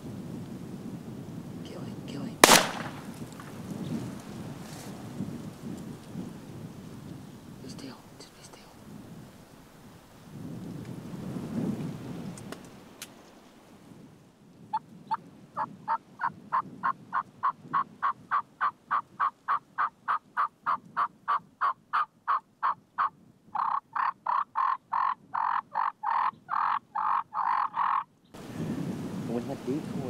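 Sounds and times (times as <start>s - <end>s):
turkey yelps: 15.6s - 28.1s.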